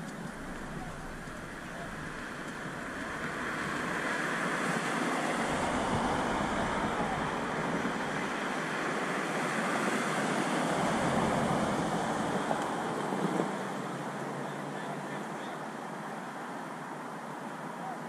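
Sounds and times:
wind on microphone: 0.0 - 14.4.

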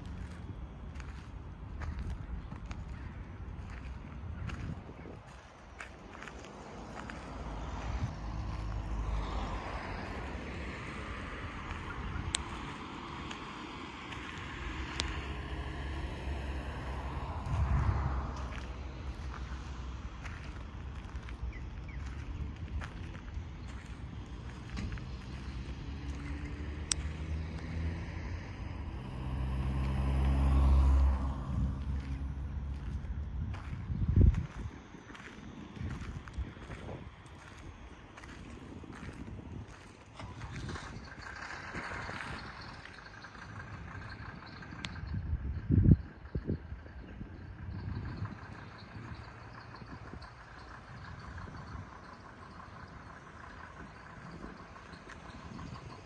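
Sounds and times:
vehicle engine running: 0.0 - 56.0
low background rumble: 28.2 - 56.0.

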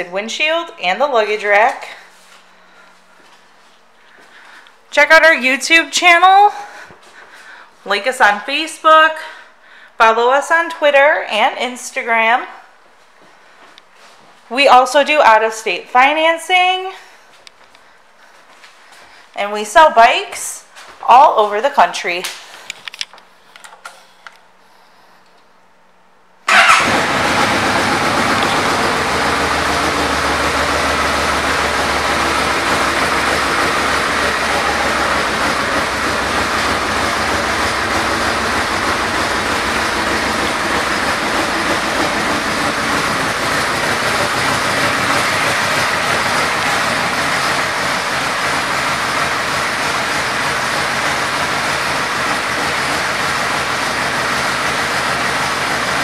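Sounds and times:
motorcycle engine starting and idling: 26.5 - 56.0.

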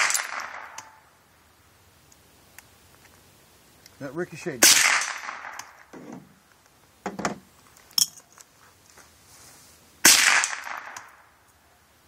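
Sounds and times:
rifle shot: 0.0 - 1.0, 4.6 - 5.9, 10.0 - 11.2.

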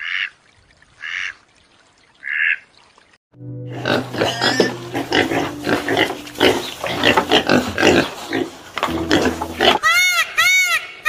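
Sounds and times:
piglets calling: 3.8 - 11.0.

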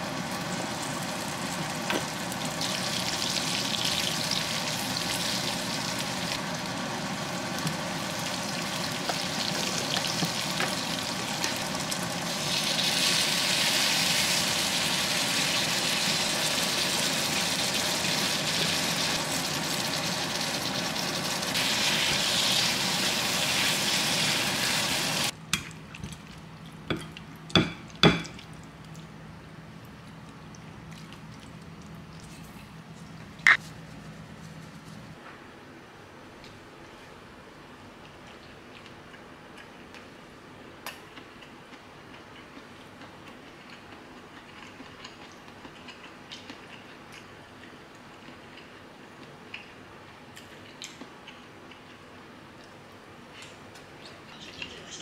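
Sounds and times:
eggplant sizzling in oil: 0.0 - 25.3.

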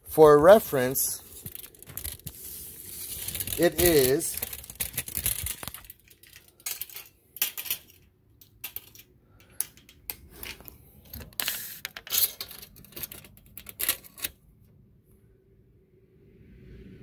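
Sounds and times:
tape measure clicking and rattling: 1.3 - 14.4.

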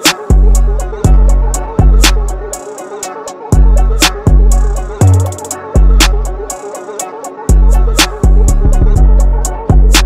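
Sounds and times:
hi-hats ticking: 0.0 - 10.0
deep bass notes: 7.5 - 10.0.

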